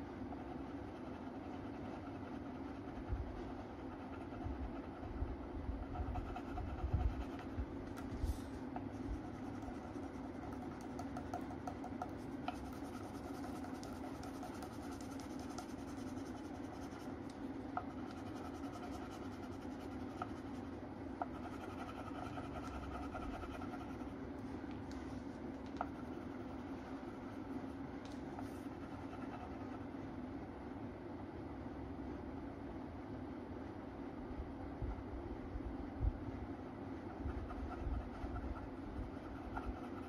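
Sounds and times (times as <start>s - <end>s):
low room hum: 0.0s - 40.0s
pen scratching on paper: 5.8s - 17.2s, 17.8s - 24.2s.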